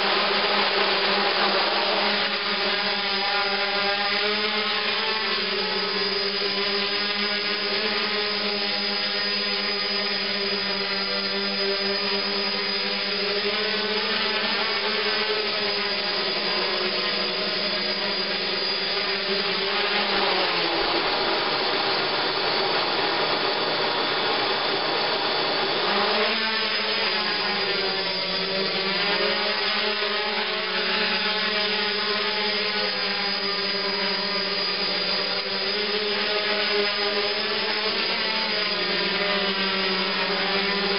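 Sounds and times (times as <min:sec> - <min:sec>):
drone propellers whining: 0:00.0 - 0:40.9.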